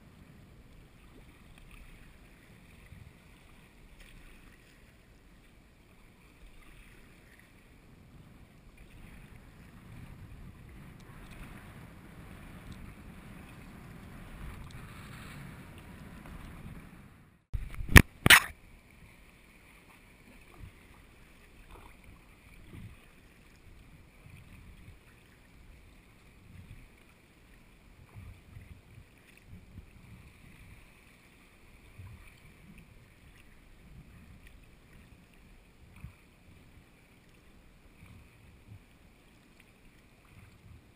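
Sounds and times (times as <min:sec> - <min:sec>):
water rushing against kayak hull: 0:00.0 - 0:40.9.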